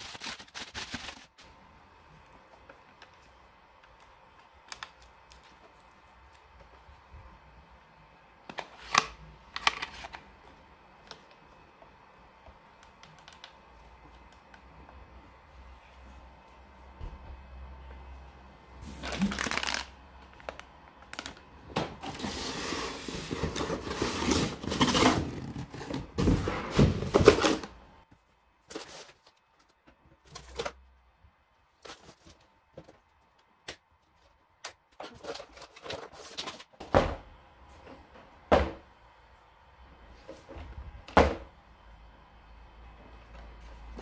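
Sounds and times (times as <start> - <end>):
cardboard scraping and rustling: 22.0 - 27.7.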